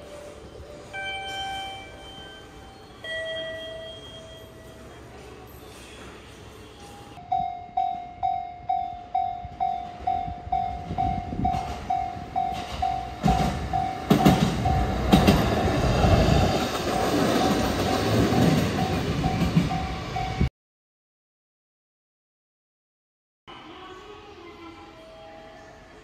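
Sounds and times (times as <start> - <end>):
train rumbling on rails: 0.0 - 20.5
level-crossing alarm ringing: 0.8 - 5.0, 6.6 - 15.4.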